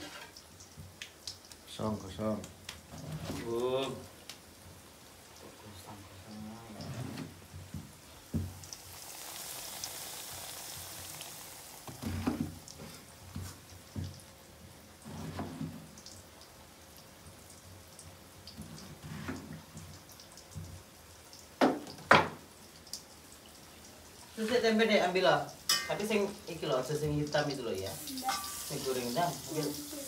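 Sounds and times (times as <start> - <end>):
kitchen knocks and clatter: 21.6 - 22.4.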